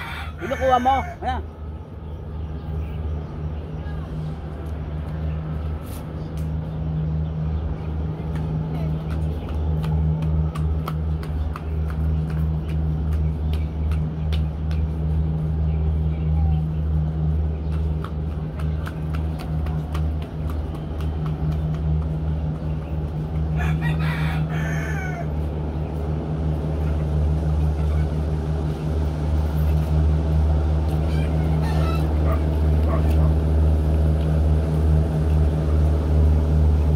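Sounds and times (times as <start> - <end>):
rooster crowing: 0.0 - 1.3, 23.6 - 25.4, 31.1 - 32.4
steady low hum: 0.0 - 36.9.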